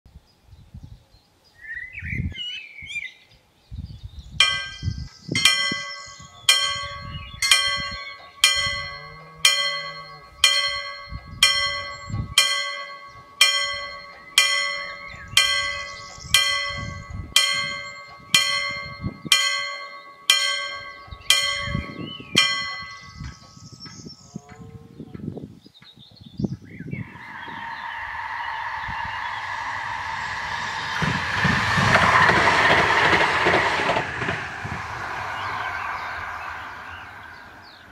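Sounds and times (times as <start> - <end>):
level-crossing warning bell: 4.4 - 24.6, 27.1 - 37.9.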